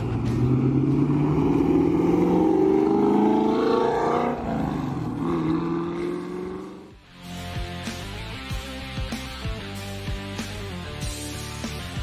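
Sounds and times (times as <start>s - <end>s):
car engine accelerating past: 0.0s - 6.9s.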